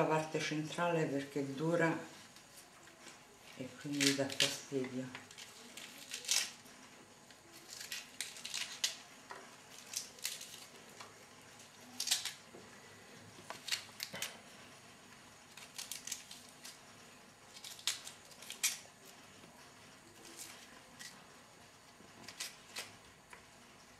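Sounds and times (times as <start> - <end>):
artichoke scraping and snapping: 12.0 - 12.5.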